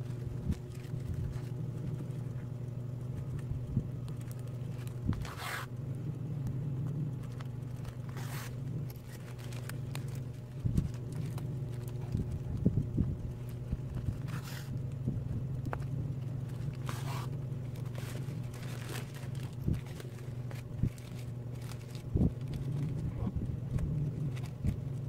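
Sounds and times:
steady low hum: 0.0s - 25.0s
plastic sack rustling: 7.2s - 15.1s, 15.8s - 25.0s.

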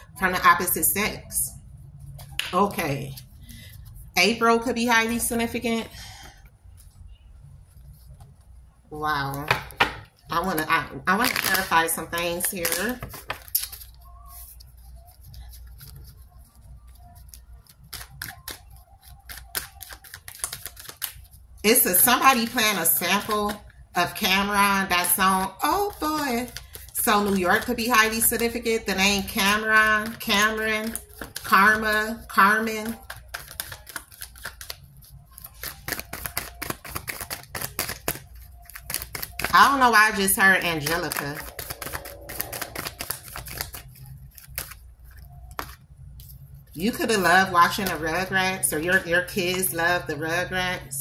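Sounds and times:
cards shuffling: 9.3s - 16.2s, 16.9s - 21.4s, 25.7s - 28.6s, 29.2s - 46.5s.

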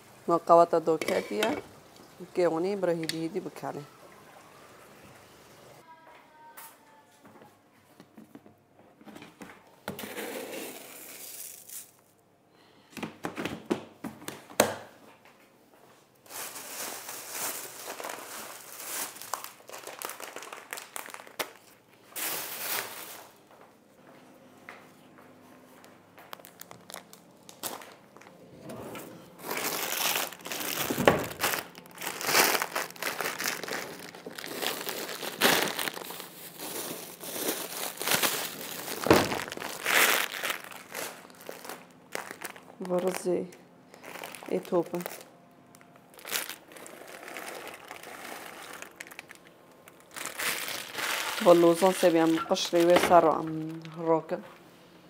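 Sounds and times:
packaging crumpling and rustling: 10.5s - 12.1s, 16.2s - 23.4s, 26.2s - 28.4s, 29.4s - 54.2s.

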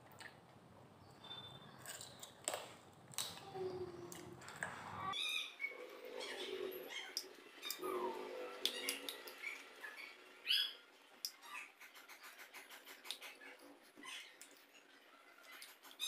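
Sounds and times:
mouth sounds chewing food: 1.2s - 4.8s.

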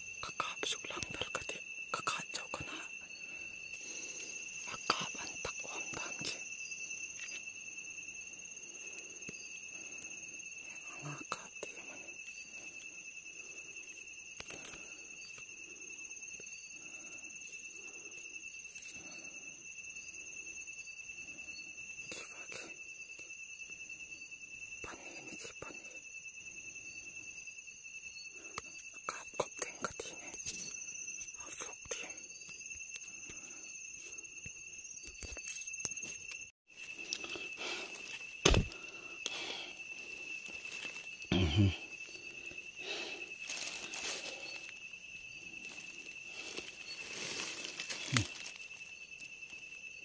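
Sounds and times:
night insects trilling: 0.0s - 50.0s
rustles of brush and leaves: 36.7s - 50.0s.

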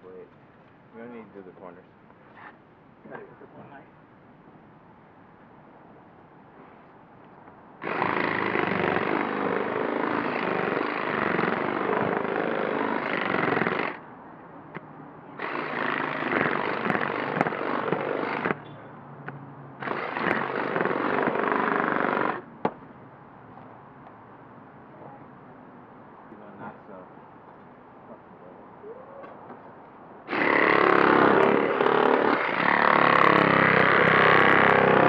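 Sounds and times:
power cutting tool buzzing: 7.8s - 14.0s, 15.4s - 18.6s, 30.3s - 35.0s.

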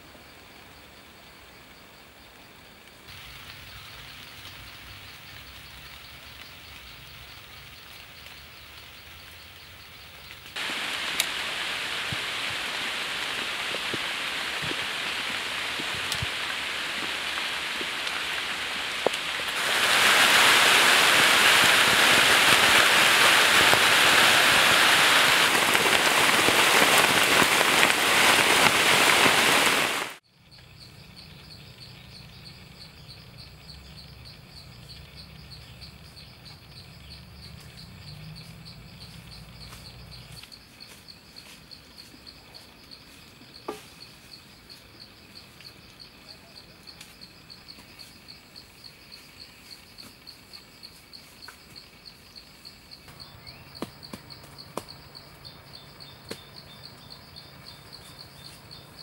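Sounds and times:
faint insect chirring: 0.0s - 27.9s, 30.2s - 59.0s
rain falling: 2.6s - 30.2s, 53.0s - 59.0s.

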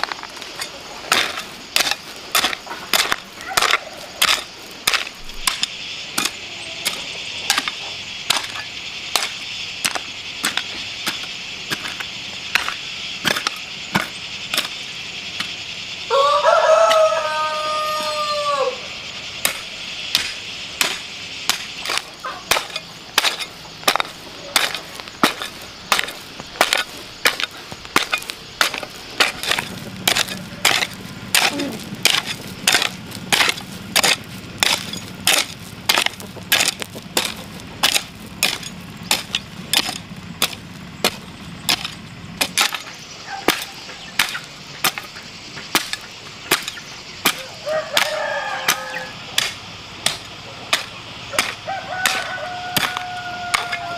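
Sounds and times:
hoe chopping into dry soil: 0.0s - 15.6s, 19.4s - 53.9s
rooster crowing: 15.8s - 19.2s, 47.3s - 49.5s, 51.2s - 53.9s.

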